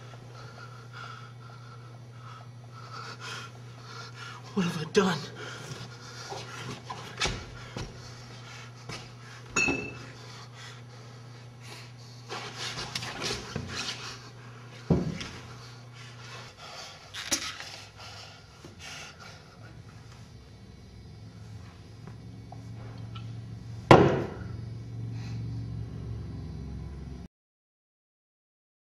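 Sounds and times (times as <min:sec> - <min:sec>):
steady low hum: 0:00.0 - 0:27.3
ringing clink: 0:09.6 - 0:10.0
loud thump: 0:23.9 - 0:24.4.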